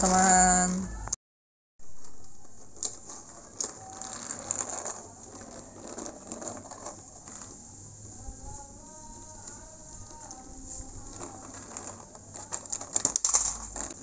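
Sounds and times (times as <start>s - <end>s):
plastic toy wheels clicking and rattling: 2.0s - 7.8s, 9.1s - 14.0s.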